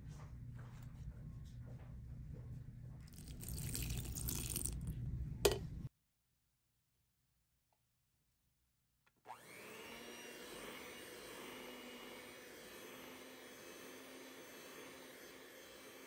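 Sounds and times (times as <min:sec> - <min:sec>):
electric hand mixer whirring: 0:09.3 - 0:16.0.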